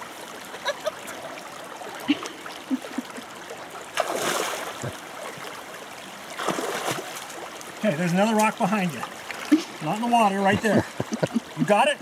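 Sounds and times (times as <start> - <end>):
person wading splashing: 0.0 - 5.6, 6.3 - 7.6
creek water running over rocks: 0.0 - 12.0.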